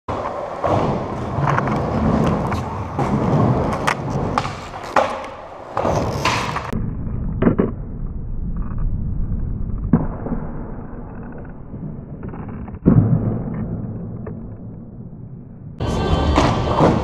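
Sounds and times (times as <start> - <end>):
skateboard wheels rolling on concrete: 0.1 - 10.0, 11.1 - 12.9
skateboard clacking on ground: 0.2 - 6.8.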